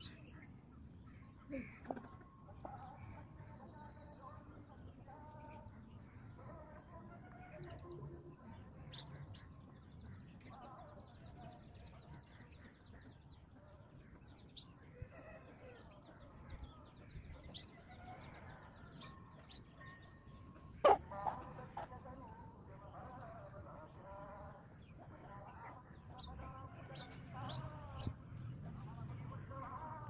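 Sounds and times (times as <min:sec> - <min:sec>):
sparrows chirping: 0:00.0 - 0:30.0
chickens clucking softly: 0:01.2 - 0:03.3.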